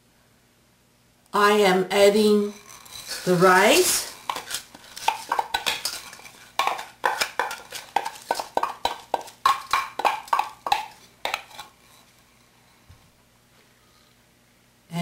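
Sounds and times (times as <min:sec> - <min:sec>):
clinks and knocks on metal wok: 0:05.0 - 0:06.0, 0:06.6 - 0:11.6.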